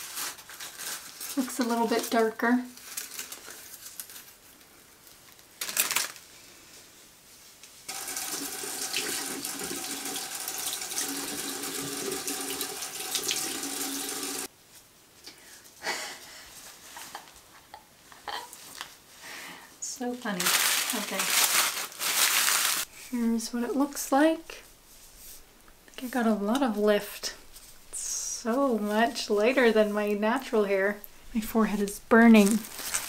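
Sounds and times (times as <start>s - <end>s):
tap water running into basin: 7.9s - 14.5s.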